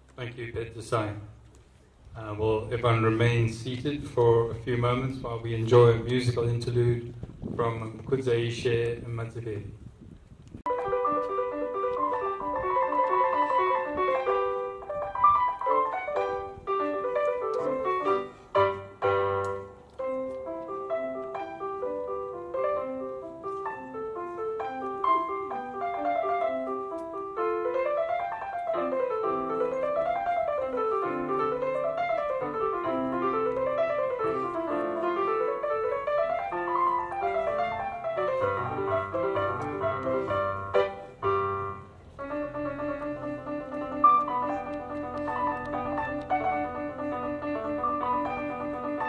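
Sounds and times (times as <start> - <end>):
electronic keyboard piano melody: 10.6 - 49.0.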